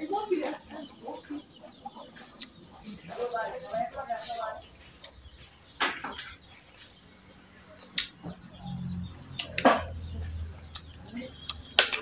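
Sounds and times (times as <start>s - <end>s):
chewing: 1.8s - 5.8s, 8.6s - 12.0s.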